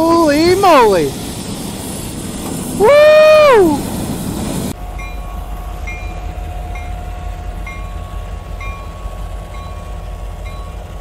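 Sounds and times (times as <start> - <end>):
locomotive rumbling: 0.0 - 11.0
metallic whine: 4.7 - 11.0
bell ringing: 4.9 - 7.0, 7.6 - 10.8.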